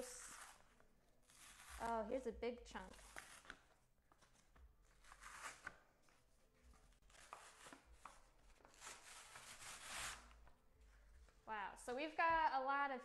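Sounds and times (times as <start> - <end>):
paper tearing off cardboard: 0.0 - 2.1, 5.0 - 5.8, 7.1 - 10.4.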